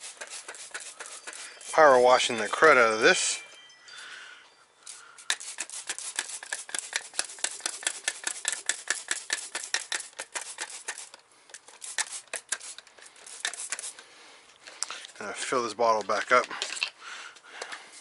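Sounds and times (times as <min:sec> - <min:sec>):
spray bottle squirting: 0:00.0 - 0:03.0, 0:04.9 - 0:14.0.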